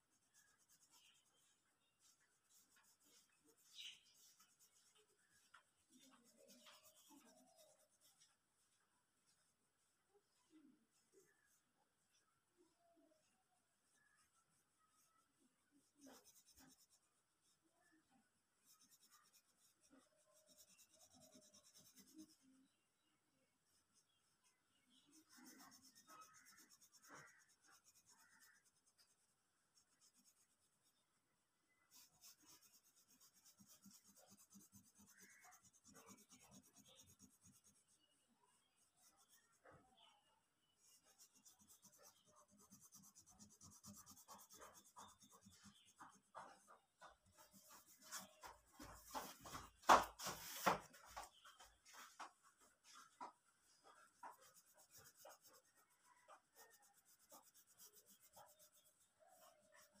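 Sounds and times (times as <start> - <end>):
colouring stick scratching paper: 0.0 - 8.5, 13.9 - 18.0, 18.6 - 22.8, 23.7 - 31.0, 31.7 - 60.0.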